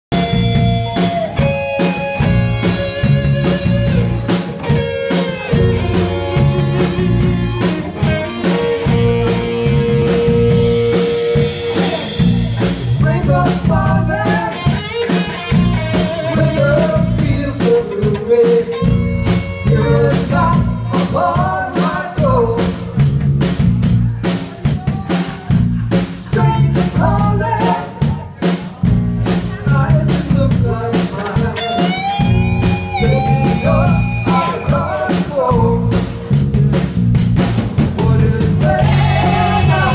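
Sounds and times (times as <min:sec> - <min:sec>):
drum kit beat: 0:00.1 - 0:39.9
electric guitars: 0:00.1 - 0:39.9
keyboard: 0:00.1 - 0:39.9
person singing: 0:13.0 - 0:15.0, 0:16.2 - 0:19.0, 0:19.6 - 0:23.0, 0:24.6 - 0:28.6, 0:29.5 - 0:32.2, 0:32.8 - 0:36.1, 0:38.0 - 0:39.9.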